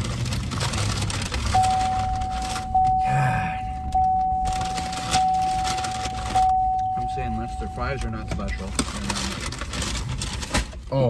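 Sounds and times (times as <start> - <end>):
car warning chime dinging: 1.5 - 9.0.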